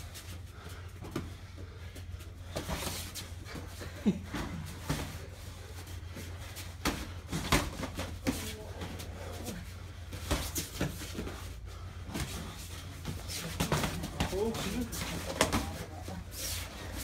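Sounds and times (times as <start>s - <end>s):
boxing gloves slapping and thudding: 6.6s - 11.4s.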